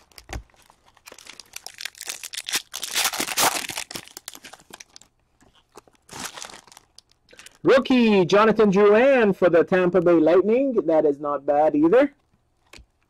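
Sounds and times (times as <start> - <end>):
foil wrapper tearing and crinkling: 0.0 - 7.2.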